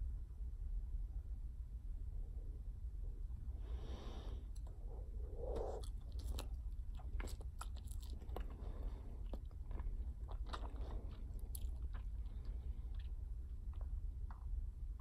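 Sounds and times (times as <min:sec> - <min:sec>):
gum chewing clicks and smacks: 0:04.5 - 0:04.8, 0:05.4 - 0:15.0.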